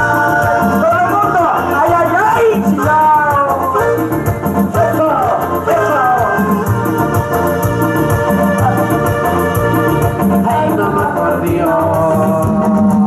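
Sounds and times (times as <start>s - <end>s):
electronic dance music: 0.0s - 13.0s.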